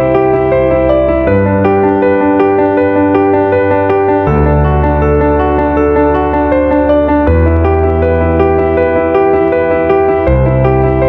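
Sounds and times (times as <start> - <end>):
piano-like keyboard notes: 0.0 - 11.0
held bass note: 4.3 - 6.7.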